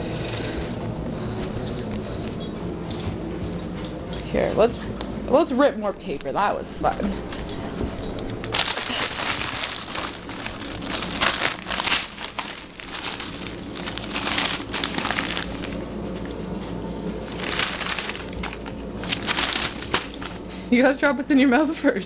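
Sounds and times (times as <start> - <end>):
paper crinkling and tearing: 8.5 - 15.8, 17.2 - 20.4.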